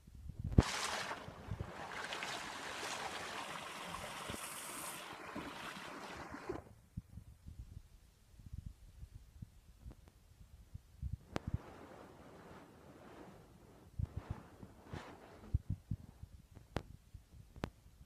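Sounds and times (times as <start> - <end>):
stream rushing: 0.6 - 6.6.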